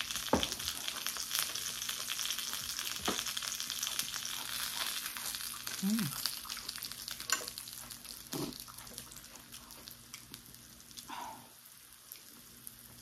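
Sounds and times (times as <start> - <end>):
dumplings sizzling in oil: 0.0 - 13.0
person humming: 5.8 - 6.3.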